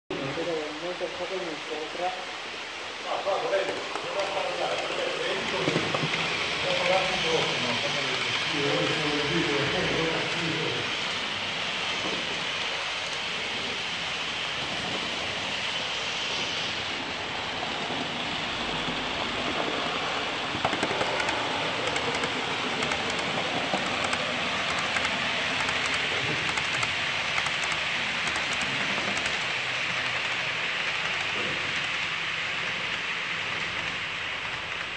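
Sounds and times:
model train motors whirring: 0:00.3 - 0:34.9
wheels clicking over rail joints: 0:18.8 - 0:34.9.

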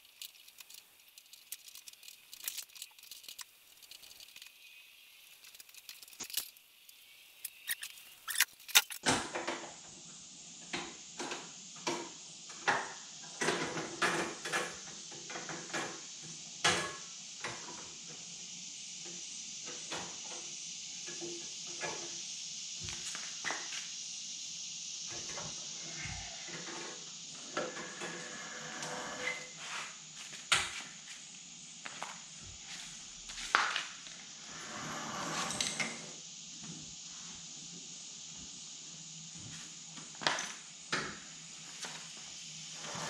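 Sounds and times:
hands handling tools and parts: 0:00.0 - 0:04.6, 0:05.3 - 0:06.6, 0:07.4 - 0:09.0
steady hiss: 0:00.0 - 0:43.0.

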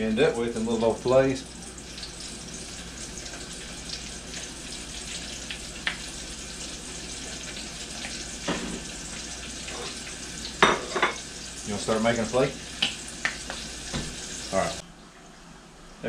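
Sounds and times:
fish frying in hot oil: 0:00.1 - 0:14.8.

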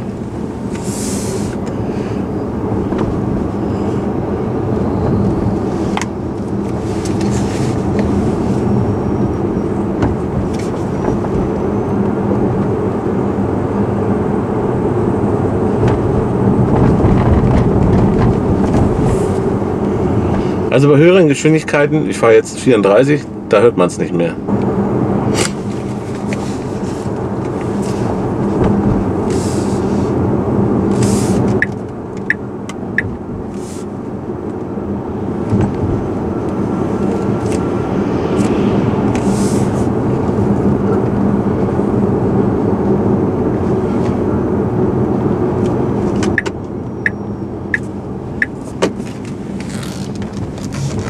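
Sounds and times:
tyre and road noise: 0:00.0 - 0:51.0
steady hum: 0:31.0 - 0:42.1.

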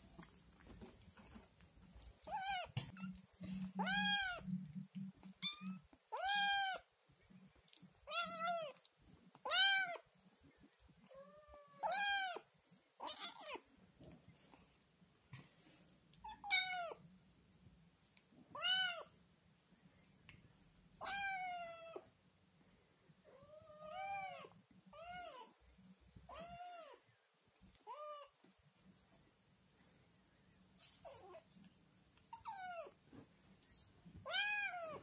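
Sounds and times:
kitten meowing: 0:03.8 - 0:04.5.

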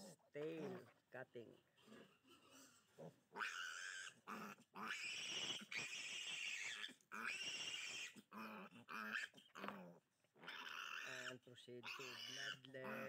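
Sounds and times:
piglet squealing: 0:01.8 - 0:13.0.

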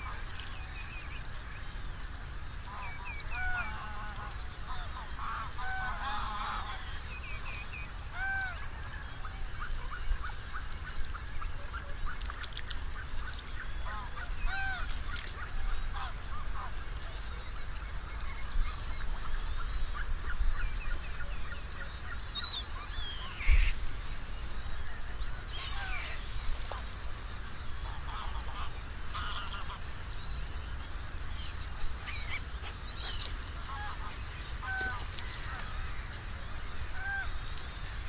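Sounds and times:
geese honking: 0:02.6 - 0:07.1, 0:08.1 - 0:12.2, 0:13.8 - 0:16.8, 0:27.8 - 0:29.9, 0:32.1 - 0:36.1, 0:36.8 - 0:37.4.

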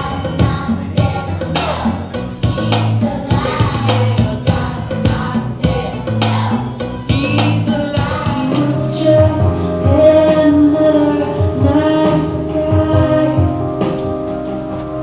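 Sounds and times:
instrumental accompaniment: 0:00.0 - 0:15.0
woman singing: 0:07.8 - 0:13.8.

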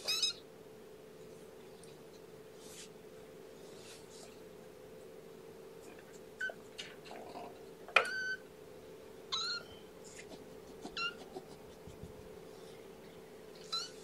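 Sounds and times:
kittens mewing: 0:09.3 - 0:12.5.

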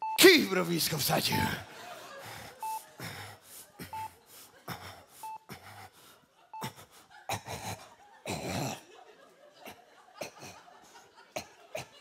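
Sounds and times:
patient monitor beeps: 0:00.0 - 0:01.7, 0:02.6 - 0:02.9, 0:03.8 - 0:05.8, 0:06.5 - 0:06.9.

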